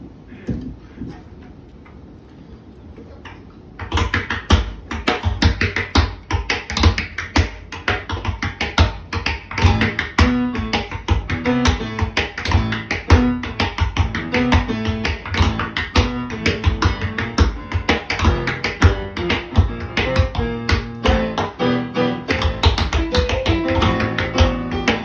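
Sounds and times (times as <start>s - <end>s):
sustained keyboard notes: 14.2s - 25.0s
tap-shoe strikes: 22.3s - 25.0s.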